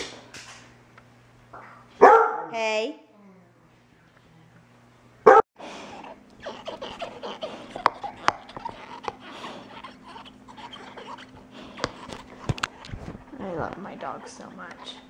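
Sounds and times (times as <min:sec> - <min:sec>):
dog barking: 0:02.0 - 0:02.5, 0:05.2 - 0:05.4
dog chewing tennis ball: 0:06.3 - 0:15.0.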